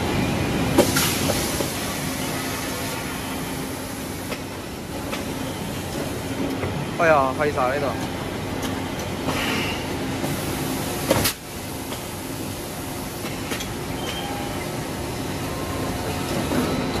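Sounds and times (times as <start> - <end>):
loud hiss of air: 0.7 - 4.8.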